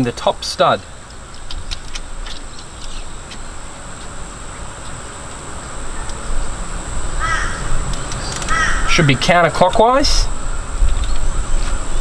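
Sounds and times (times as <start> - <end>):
outdoor background noise: 0.0 - 12.0
thin high whine: 0.0 - 12.0
crow cawing: 7.2 - 7.8, 8.4 - 9.0.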